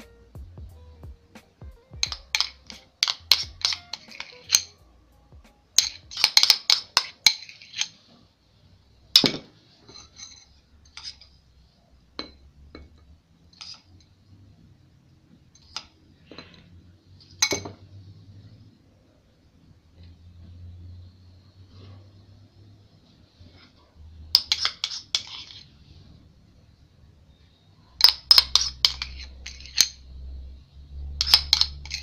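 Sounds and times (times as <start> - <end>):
metal spoon clinking against glass: 2.0 - 4.8, 5.8 - 8.0, 17.4 - 17.8, 28.0 - 30.0, 31.2 - 32.0.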